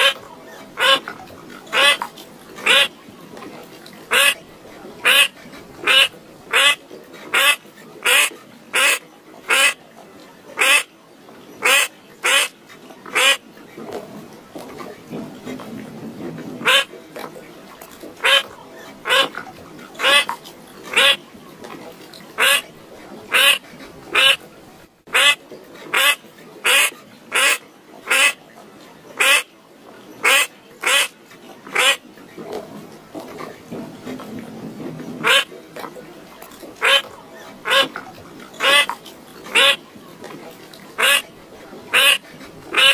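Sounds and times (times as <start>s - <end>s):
bird calling: 36.8s - 38.0s, 41.0s - 41.2s.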